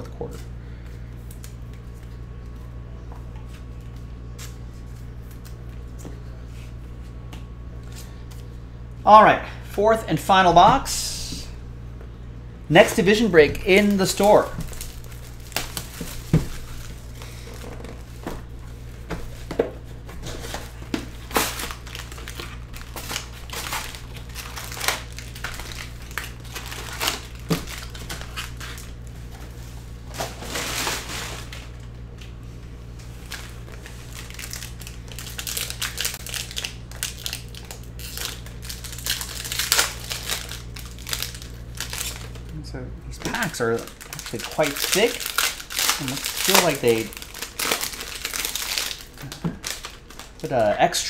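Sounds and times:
wrappers crinkling and tearing: 12.8 - 19.5, 20.2 - 32.3, 33.0 - 51.0.

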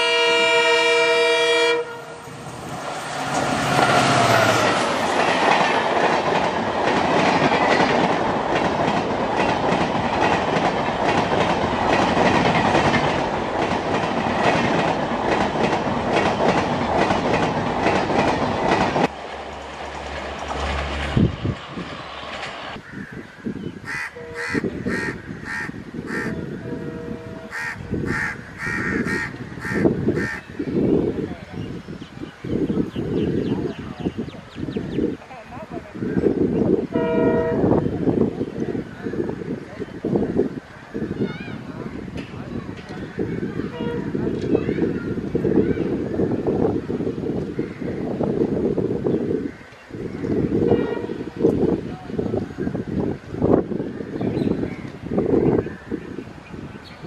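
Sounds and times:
locomotive horn blast: 0.0 - 2.4, 24.2 - 24.7, 26.6 - 27.5, 36.9 - 37.8, 43.7 - 44.2, 50.6 - 51.4
train passing with rumble: 0.0 - 57.0
wheels clacking over rail joints: 2.6 - 21.6
crows cawing: 22.8 - 26.4, 27.5 - 30.5.

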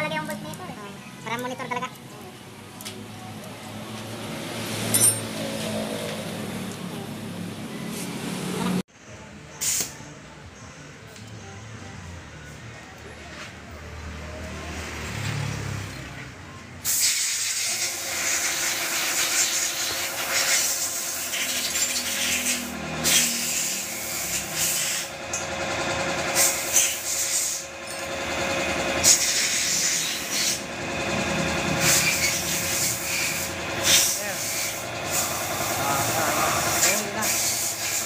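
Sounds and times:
machine hissing loudly: 16.8 - 38.0
machine hum: 20.9 - 38.0.

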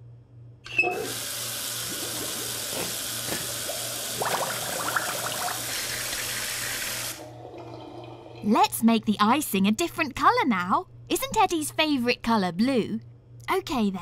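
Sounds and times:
tap water running into sink: 0.9 - 8.2
hands washed under water: 1.1 - 7.2.

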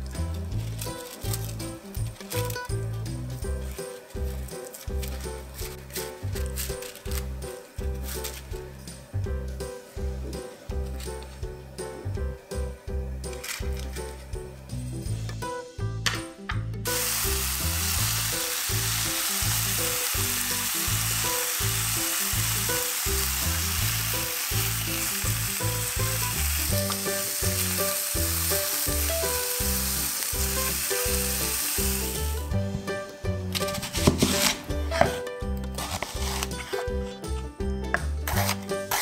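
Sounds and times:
meat patties sizzling in a pan: 16.9 - 32.6.

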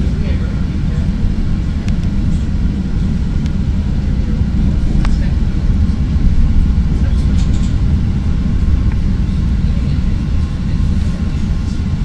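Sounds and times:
train wheels rumbling on rails: 0.0 - 12.0.

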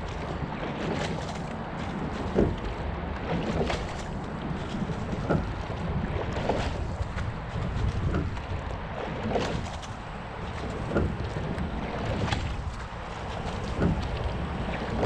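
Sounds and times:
oars splashing and clunking: 0.0 - 15.0
water rushing along hull: 0.0 - 15.0
wind rumbling on microphone: 0.0 - 15.0.

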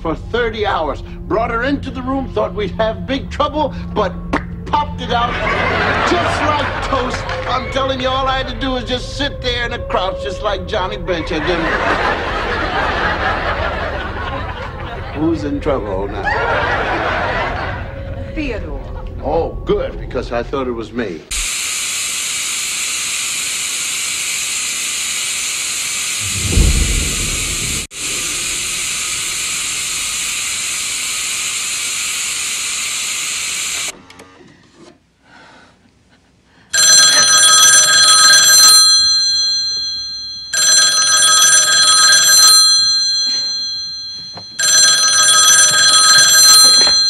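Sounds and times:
low thump: 26.2 - 30.4
telephone ringing: 36.8 - 47.0.

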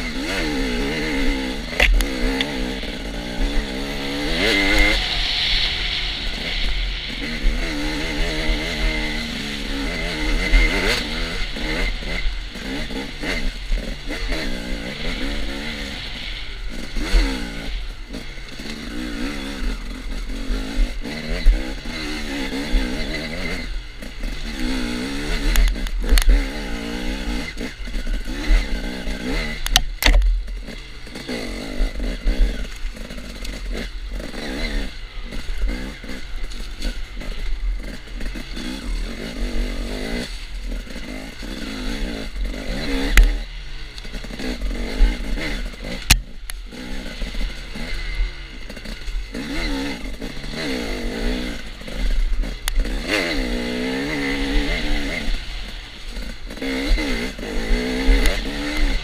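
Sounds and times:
dirt bike engine revving: 0.0 - 59.0
wind rumble on microphone: 1.1 - 20.2.

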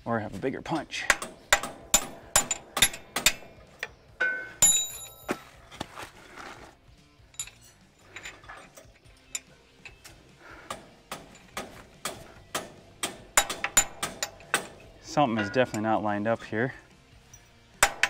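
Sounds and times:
hammer tapping steel punch: 0.8 - 5.3, 9.4 - 16.0.

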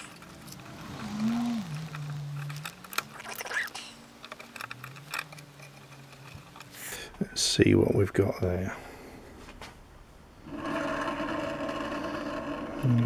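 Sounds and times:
man humming: 0.9 - 2.7, 12.8 - 13.0.

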